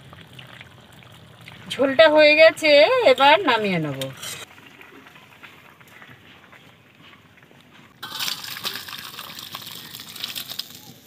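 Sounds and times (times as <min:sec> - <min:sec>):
curry splashing into bowl: 0:08.0 - 0:11.0.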